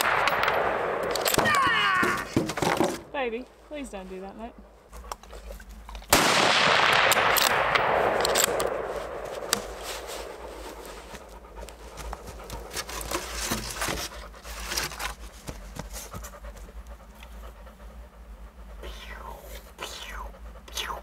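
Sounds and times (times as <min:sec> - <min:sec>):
rifle shot echoing: 0:00.0 - 0:01.4, 0:06.1 - 0:10.5
dog panting: 0:03.5 - 0:06.1, 0:09.3 - 0:21.0.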